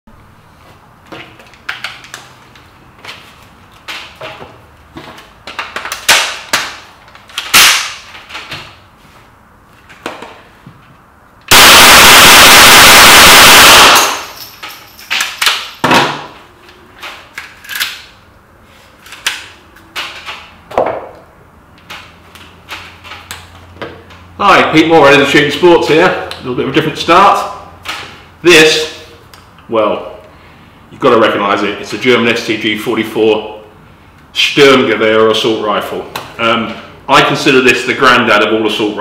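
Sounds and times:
rifle rapid fire burst: 11.5s - 14.3s.

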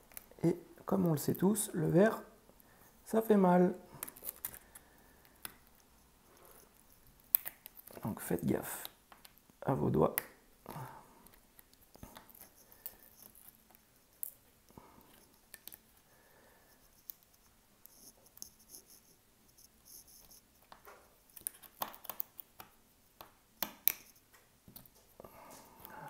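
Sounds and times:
glass clicking and scraping: 4.0s - 8.0s.

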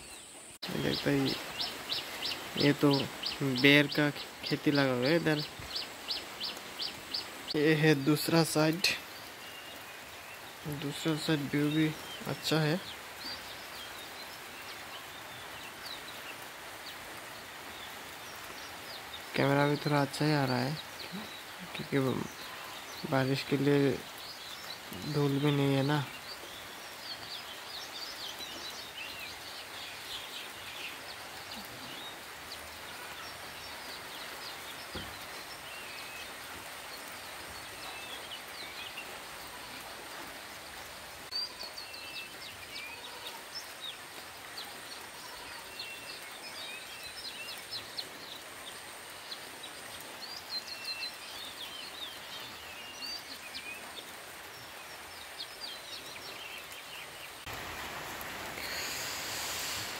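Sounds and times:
birds chirping: 0.0s - 59.9s
rain hissing: 0.0s - 59.9s.

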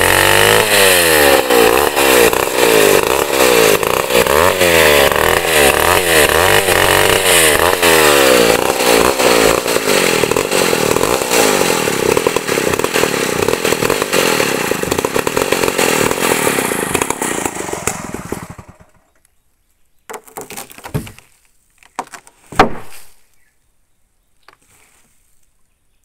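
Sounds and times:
chainsaw cutting log: 0.0s - 19.2s, 20.1s - 21.2s.

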